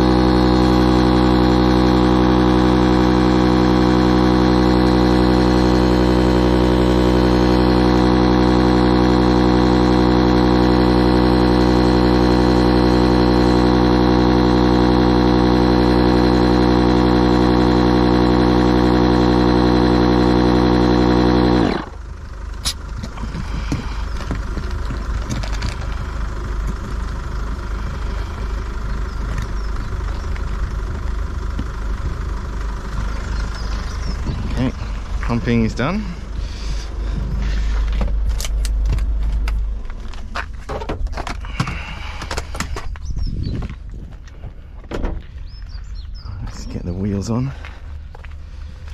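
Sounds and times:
electric air pump humming: 0:00.0 - 0:29.6.

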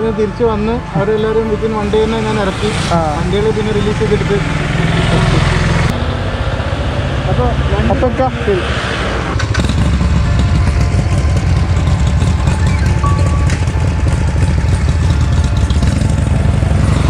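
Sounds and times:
motorcycle engine idling: 0:09.6 - 0:16.9.

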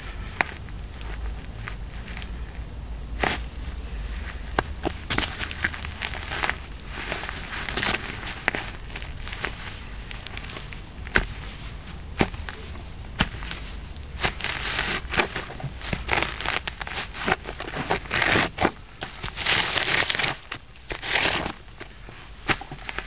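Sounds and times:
weeds crunching and rustling underfoot: 0:03.1 - 0:23.0
stems snapping underfoot: 0:04.5 - 0:11.4.

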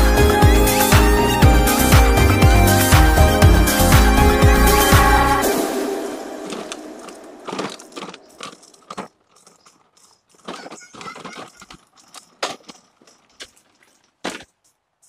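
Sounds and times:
background music: 0:00.0 - 0:08.0
sandals scuffing on concrete: 0:10.3 - 0:14.7.

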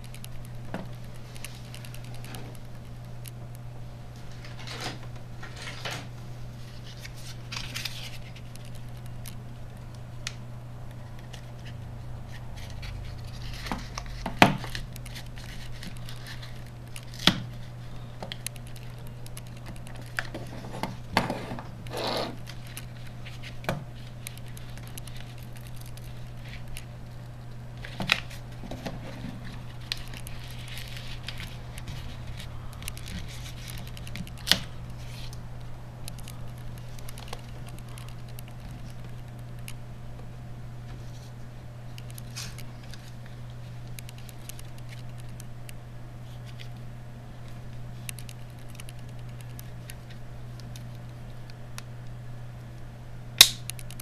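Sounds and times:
steady low hum: 0:00.0 - 0:54.0
scraping and handling rustle: 0:04.2 - 0:09.4, 0:11.0 - 0:35.4.

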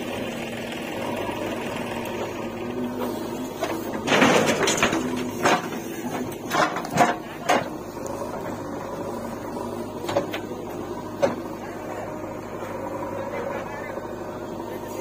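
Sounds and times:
diesel engine running: 0:00.0 - 0:15.0
soil falling into trolley: 0:04.0 - 0:07.7.

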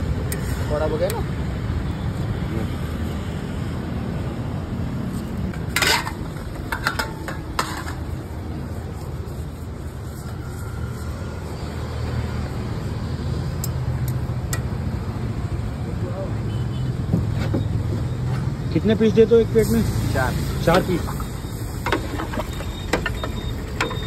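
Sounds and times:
low rumble of street traffic: 0:00.0 - 0:24.0
metal plates clinking: 0:05.6 - 0:08.1, 0:21.8 - 0:24.0.

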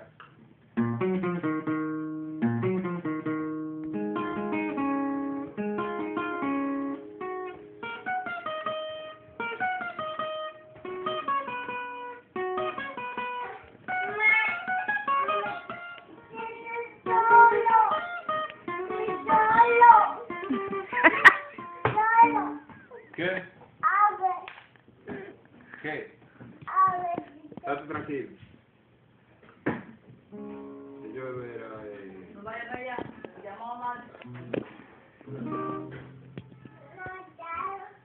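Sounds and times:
acoustic guitar bachata melody: 0:00.7 - 0:23.1, 0:30.3 - 0:33.3, 0:34.0 - 0:37.6.

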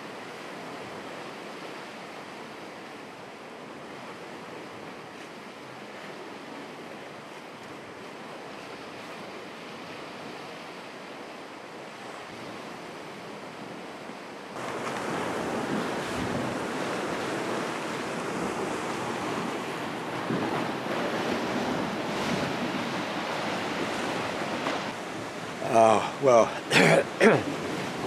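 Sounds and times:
waves washing: 0:00.0 - 0:28.0
wind buffeting the microphone: 0:12.3 - 0:26.2.

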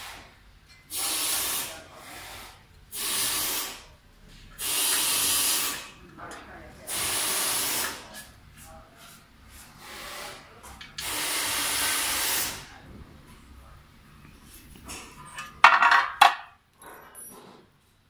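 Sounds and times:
burst of hiss: 0:00.9 - 0:03.9, 0:04.6 - 0:05.9, 0:06.9 - 0:08.0, 0:11.0 - 0:12.7
metal stand scraping and clattering: 0:14.8 - 0:17.6.

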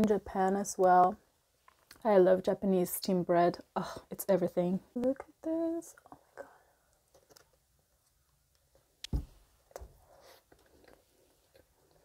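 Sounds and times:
chewing soft bread: 0:09.7 - 0:12.0.

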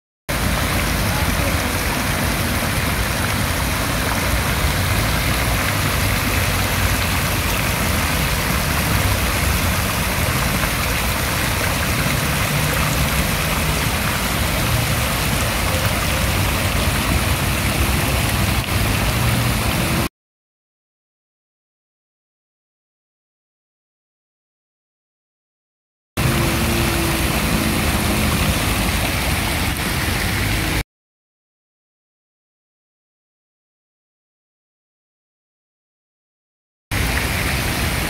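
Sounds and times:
fountain water splashing: 0:00.3 - 0:20.1, 0:26.2 - 0:30.8, 0:36.9 - 0:38.0.

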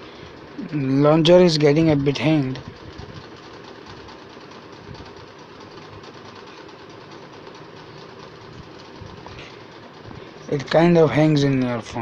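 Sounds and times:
machine running with fast flutter: 0:00.0 - 0:12.0.

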